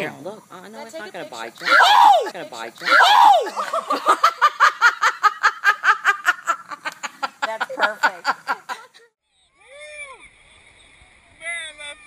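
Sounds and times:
woman laughing hard: 3.3 - 9.1.

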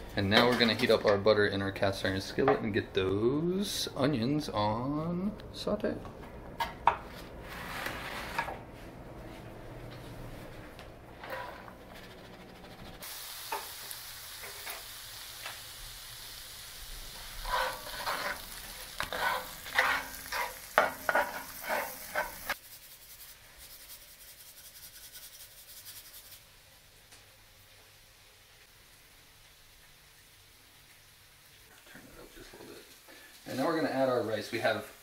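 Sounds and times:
spoon scraping pan: 11.2 - 12.7, 17.3 - 22.6
onions sizzling in butter: 11.2 - 35.0
faint hiss: 12.0 - 19.6, 22.0 - 35.0.

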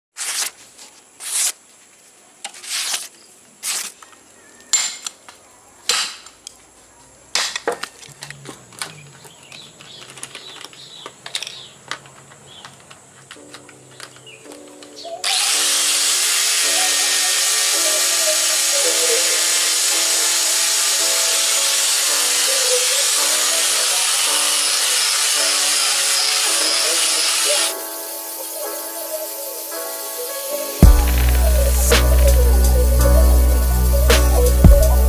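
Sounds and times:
blade slicing through paper: 0.2 - 1.6, 2.5 - 4.0.

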